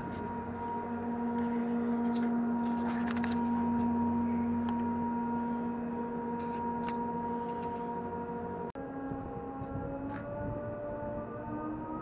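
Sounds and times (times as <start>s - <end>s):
ferry engines droning: 0.0s - 12.0s.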